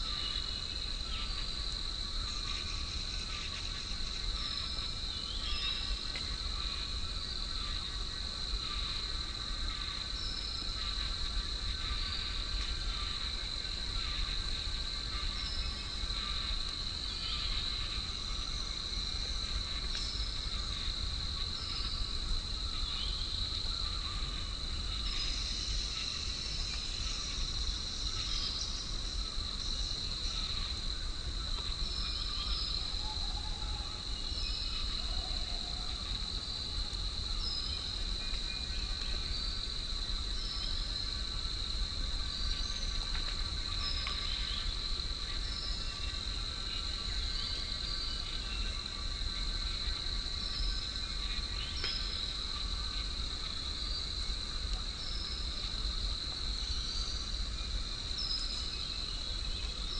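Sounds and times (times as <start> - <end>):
insects buzzing: 0.0 - 59.9.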